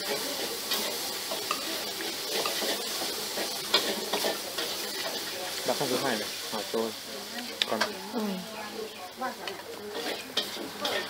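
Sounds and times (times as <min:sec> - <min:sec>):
cutlery scraping ceramic plate: 0:10.0 - 0:11.0.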